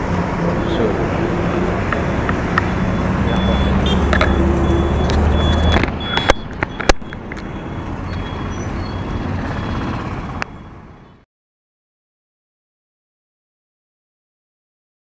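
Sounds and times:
road traffic noise: 0:00.0 - 0:11.3.

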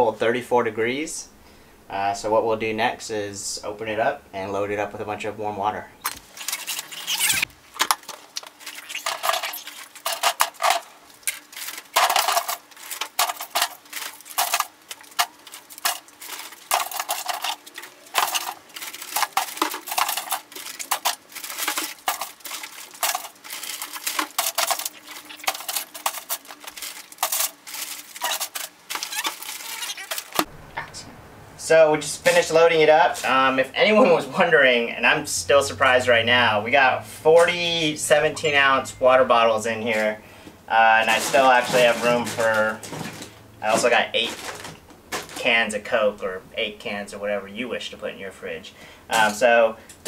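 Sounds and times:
plastic bottles crinkling and clattering: 0:06.0 - 0:30.5, 0:32.2 - 0:34.2, 0:39.4 - 0:46.3, 0:49.1 - 0:50.0.

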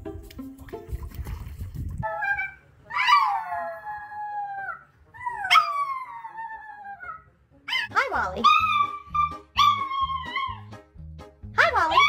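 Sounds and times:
small dog howling: 0:02.0 - 0:07.2, 0:08.4 - 0:10.7.

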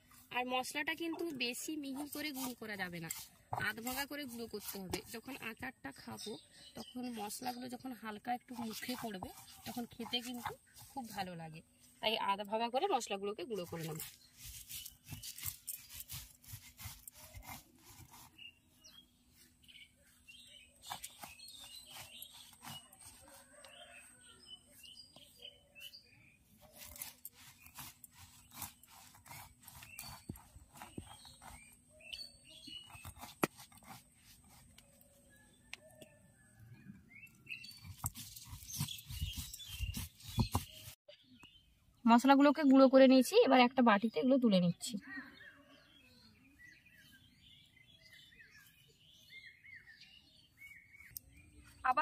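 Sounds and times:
birds chirping: 0:00.4 - 0:42.8, 0:43.6 - 0:52.0
faint bird chirps: 0:34.5 - 0:42.0, 0:44.7 - 0:52.0
stone grinding spices: 0:37.8 - 0:40.9.

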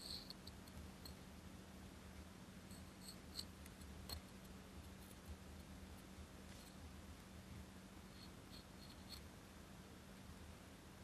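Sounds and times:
faint low hum: 0:00.0 - 0:11.0
toothpick ticking and scraping: 0:02.7 - 0:05.4, 0:08.1 - 0:09.3.

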